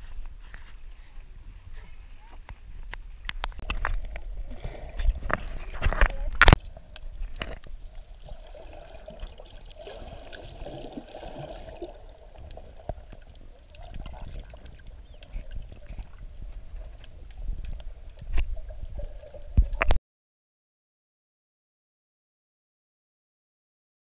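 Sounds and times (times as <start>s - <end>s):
water sloshing underwater: 2.8s - 20.0s.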